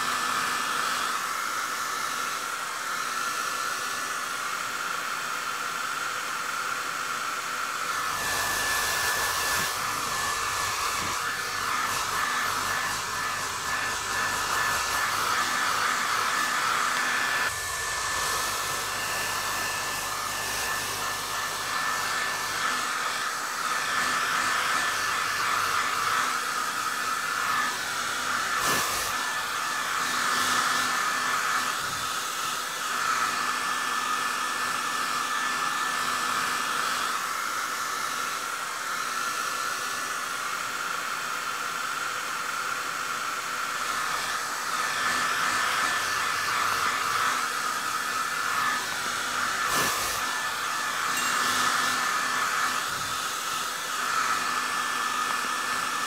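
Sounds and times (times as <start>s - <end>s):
hair dryer blowing air: 0.0s - 56.0s.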